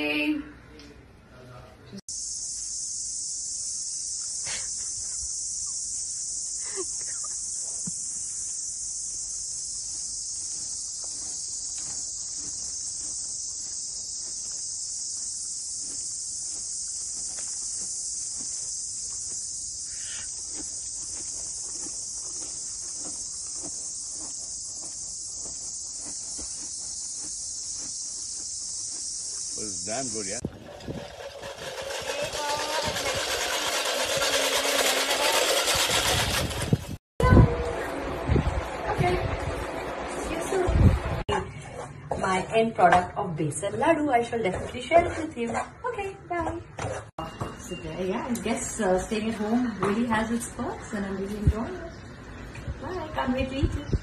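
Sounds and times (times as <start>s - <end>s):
insect chorus chirring: 2.1s - 36.5s.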